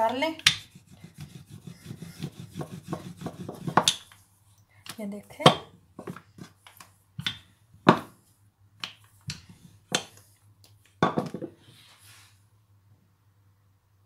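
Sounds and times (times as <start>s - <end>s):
rolling pin knocking on wood: 2.2s - 4.0s.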